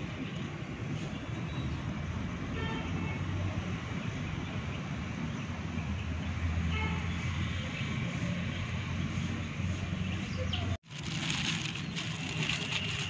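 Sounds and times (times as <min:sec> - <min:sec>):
road traffic rumble: 0:00.0 - 0:13.0
plastic bag crinkling: 0:10.8 - 0:13.0.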